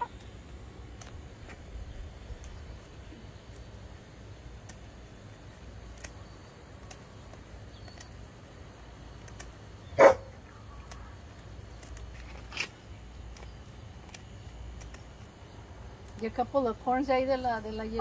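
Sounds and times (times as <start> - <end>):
scissors snipping feathers: 0.0 - 1.7, 4.6 - 8.3, 9.0 - 9.6, 10.8 - 15.4
dog barking: 10.0 - 10.4.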